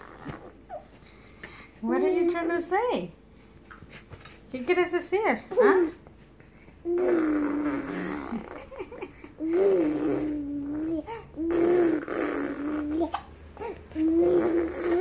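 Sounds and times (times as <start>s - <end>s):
baby cooing: 0.0s - 0.9s, 5.5s - 6.0s, 6.8s - 15.0s.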